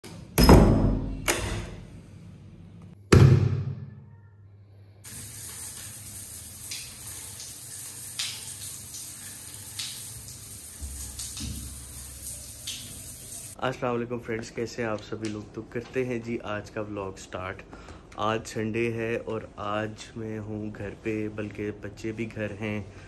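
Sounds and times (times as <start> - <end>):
shower running: 5.0 - 13.6.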